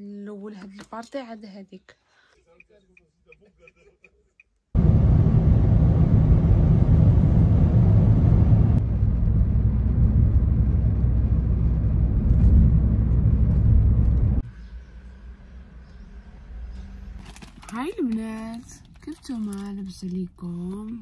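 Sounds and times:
car cabin road rumble: 4.8 - 14.5.

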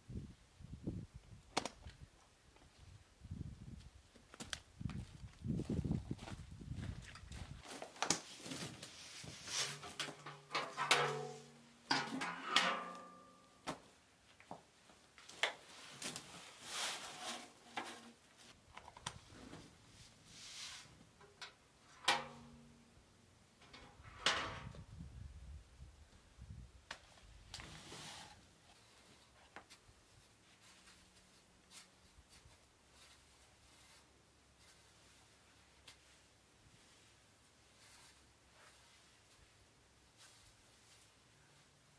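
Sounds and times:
bucket scooping sand: 9.0 - 11.4
metal buckets clanking: 9.6 - 13.6, 21.2 - 22.6.

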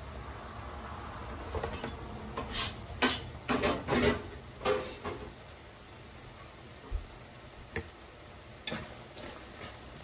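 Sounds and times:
faint steady bubbling: 4.1 - 10.0.

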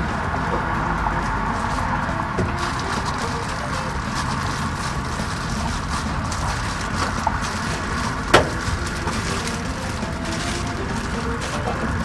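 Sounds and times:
foil insulation crinkling: 0.0 - 12.0.

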